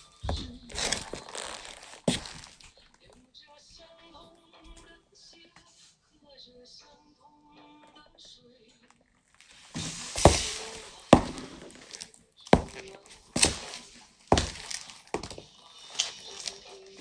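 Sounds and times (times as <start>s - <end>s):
boots with spurs on hard floor: 0.0s - 2.7s, 9.4s - 17.0s.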